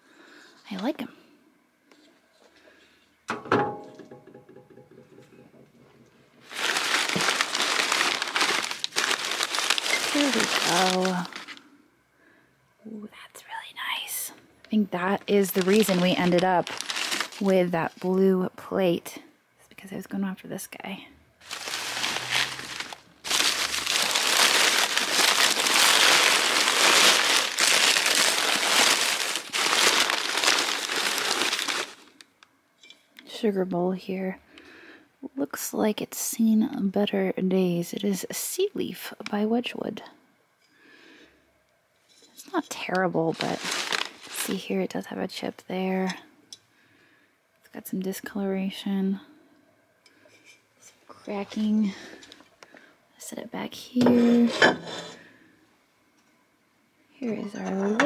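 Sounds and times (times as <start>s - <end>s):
newspaper rustling and crinkling: 6.4s - 11.6s, 15.0s - 18.2s, 21.4s - 32.2s, 42.6s - 44.7s.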